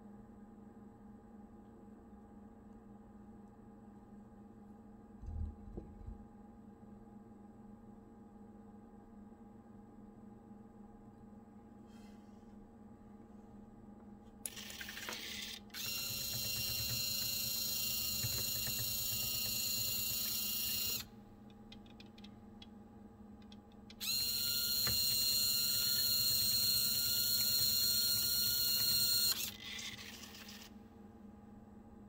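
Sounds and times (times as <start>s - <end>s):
small electric motor whining: 14.5s - 21.1s, 24.0s - 30.7s.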